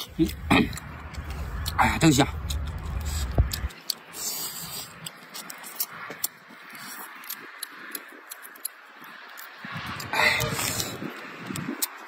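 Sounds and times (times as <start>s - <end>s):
mouth chewing: 0.0s - 12.0s
shrimp shell cracking: 4.9s - 10.8s.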